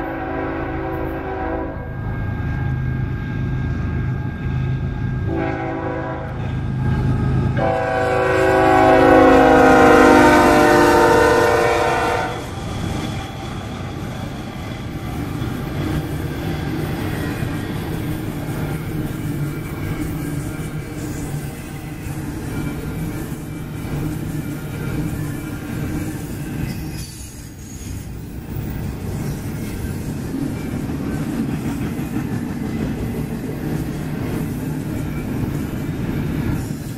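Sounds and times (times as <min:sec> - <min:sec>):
locomotive air horn blasts: 0:00.0 - 0:01.9, 0:05.3 - 0:06.4, 0:07.0 - 0:12.5
freight cars rumbling on rails: 0:00.0 - 0:36.9.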